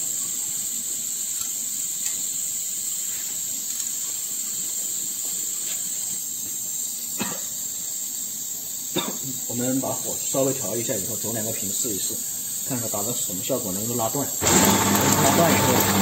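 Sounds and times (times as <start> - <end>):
gas burners hissing: 0.0 - 16.0.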